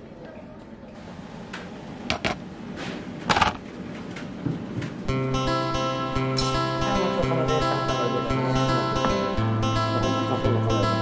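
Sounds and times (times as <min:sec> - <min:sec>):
kitchen ambience: 0:00.1 - 0:05.1
guitar music: 0:05.1 - 0:11.0.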